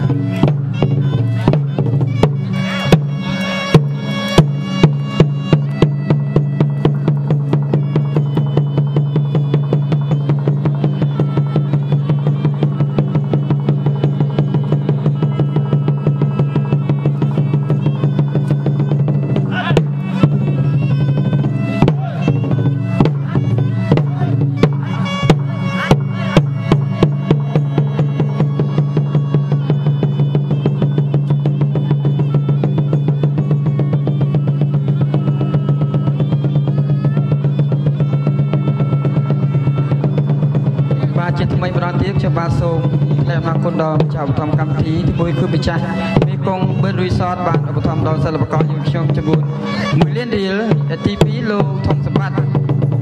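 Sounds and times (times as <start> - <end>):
fast drum and percussion strokes: 0.0 - 53.0
pitched melody line: 0.0 - 53.0.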